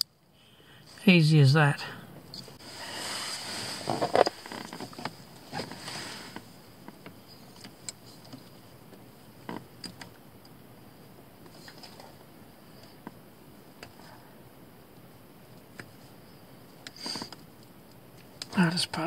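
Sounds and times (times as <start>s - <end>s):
scrapes: 2.4s - 6.5s
hands rustling and rubbing wires: 2.4s - 10.1s.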